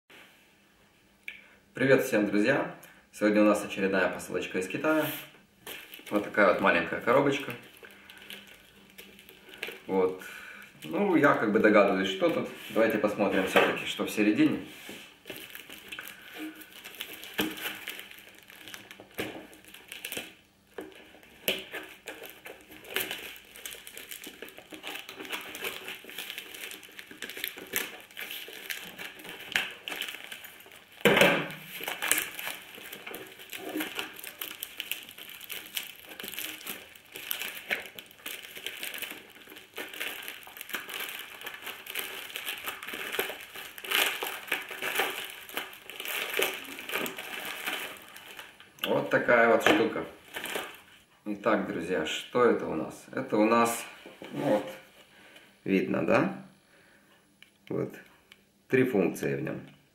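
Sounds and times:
packaging crinkling as torn open: 0:05.6 - 0:14.4, 0:15.2 - 0:50.9.

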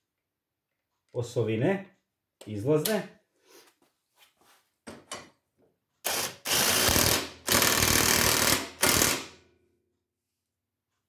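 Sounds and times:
cordless drill driving bolt: 0:06.0 - 0:09.3.

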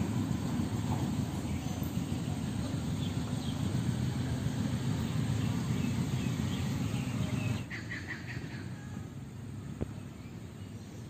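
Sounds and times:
small birds chirping: 0:00.5 - 0:08.7.

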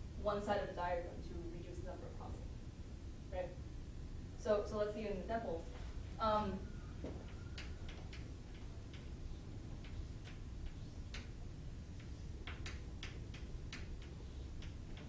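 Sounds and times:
steady low hum: 0:00.0 - 0:15.0
marker ticking on board: 0:12.0 - 0:15.0.

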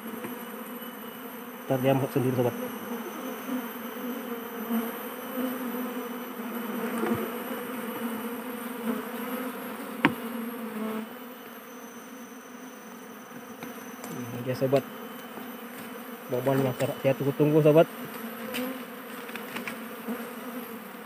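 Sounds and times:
honeybees buzzing: 0:00.0 - 0:21.0.

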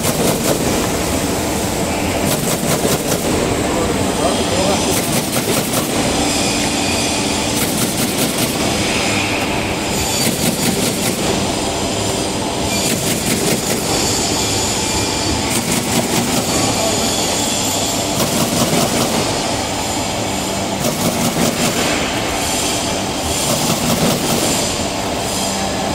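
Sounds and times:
machine mechanical rattle: 0:00.0 - 0:01.1, 0:02.2 - 0:03.4, 0:07.2 - 0:14.7, 0:17.8 - 0:19.4, 0:20.8 - 0:24.9
rapid clicking bursts: 0:18.2 - 0:19.3.

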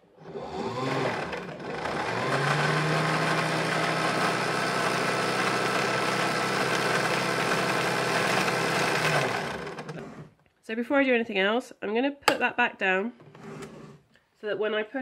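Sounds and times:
sewing machine motor whirring: 0:00.2 - 0:10.4.

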